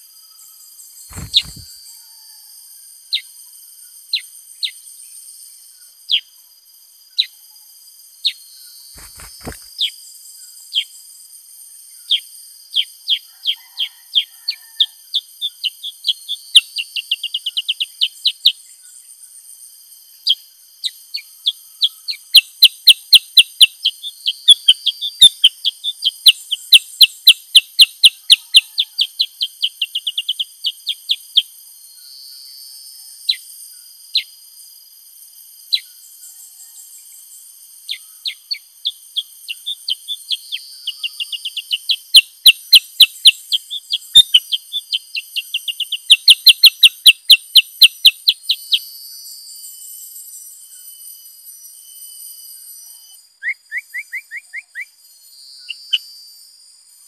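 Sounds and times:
high insect drone: 0.0 - 57.0
bird chirping: 0.3 - 2.0, 8.2 - 11.0, 20.2 - 31.5, 37.8 - 48.9, 52.7 - 56.2.

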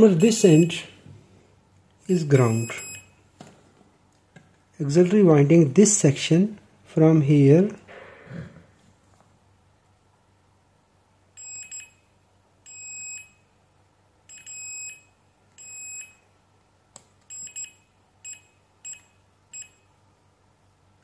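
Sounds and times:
multimeter continuity beeps: 0.0 - 0.8, 2.4 - 3.2, 11.4 - 13.5, 14.3 - 16.3, 17.3 - 19.9.

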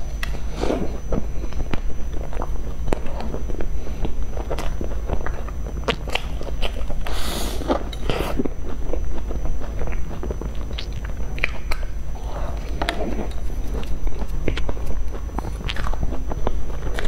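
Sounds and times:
steady low hum: 0.0 - 17.0
chewing with smacking clicks: 1.0 - 7.1, 7.7 - 17.0
breathy hisses: 7.0 - 8.4.

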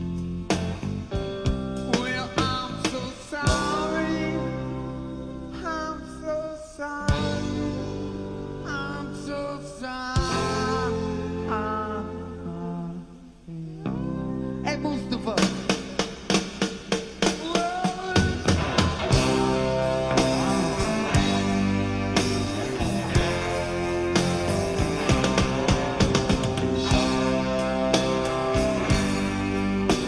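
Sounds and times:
bass guitar: 0.0 - 30.0
electric guitar: 0.0 - 30.0.

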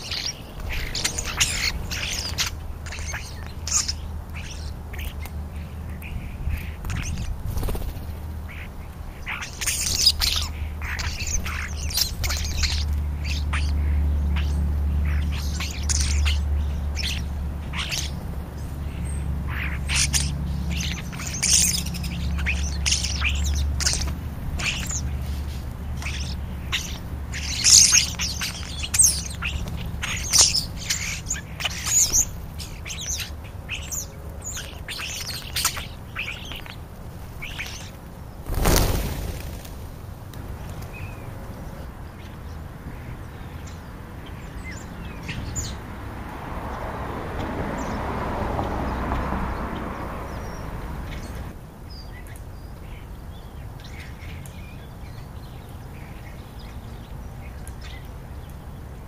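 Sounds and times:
starlings calling: 0.0 - 45.9, 48.7 - 58.8.

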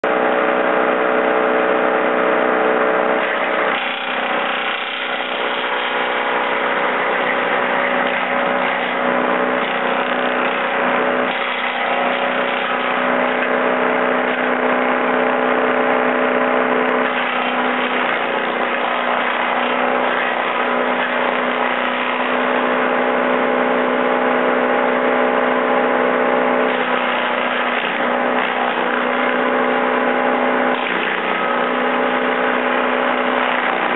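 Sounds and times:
tractor engine drone: 0.0 - 33.9
wood chipper chipping branches: 0.0 - 33.9.

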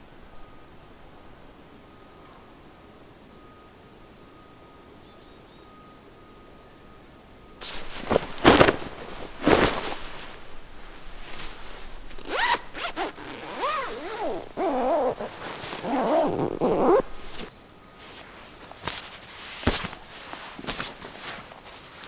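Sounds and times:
zipper being pulled: 11.3 - 17.5.

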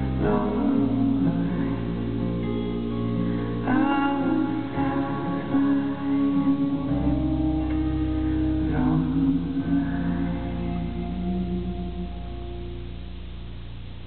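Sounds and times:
acoustic guitar: 0.0 - 14.0
resonator guitar: 0.0 - 14.0
steady low bass: 0.0 - 14.0.

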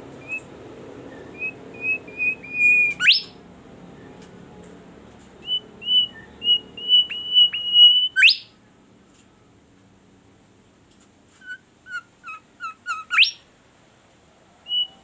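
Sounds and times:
bird whistling with whip note: 1.2 - 3.4.

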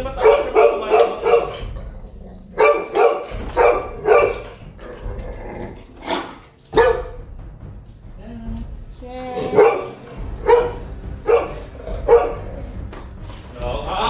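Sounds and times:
dog barking angrily: 0.1 - 5.0, 6.0 - 7.2, 9.4 - 12.7.

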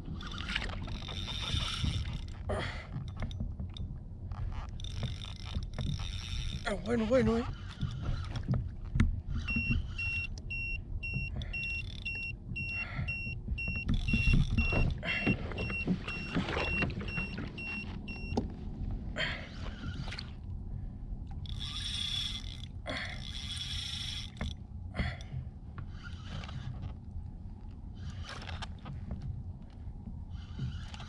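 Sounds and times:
water noise: 0.0 - 12.6, 13.4 - 25.2.

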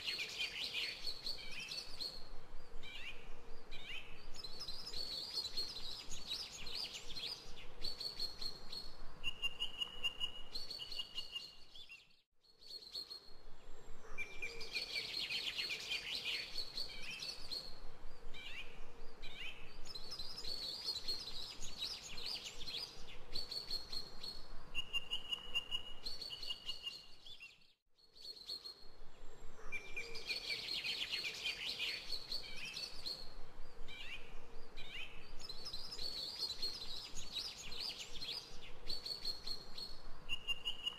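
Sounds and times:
birds chirping and singing: 29.5 - 33.3, 33.9 - 40.9.

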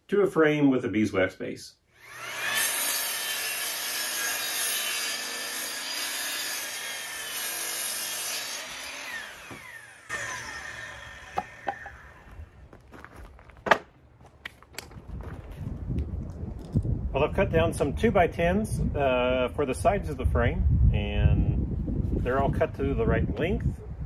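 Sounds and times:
saw blade spinning down whine: 2.0 - 3.1, 8.7 - 12.6
miter saw cutting board: 2.0 - 12.6.

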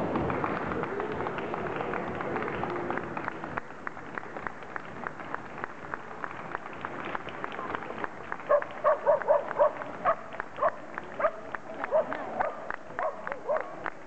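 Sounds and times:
dogs trotting: 6.2 - 13.9.

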